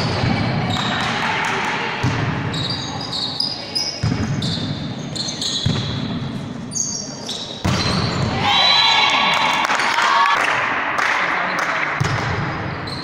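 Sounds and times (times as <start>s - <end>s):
shoes squeaking on court floor: 2.5s - 8.3s, 12.7s - 13.0s
volleyball struck with thuds: 7.6s - 8.4s, 12.0s - 12.6s.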